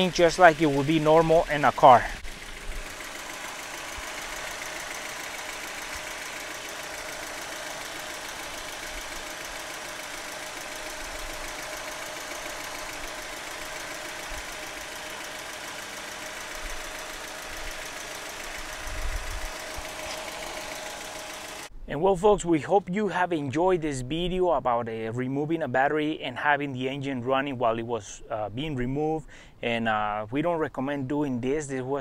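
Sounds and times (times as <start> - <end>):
car engine idling: 0.0 - 21.7.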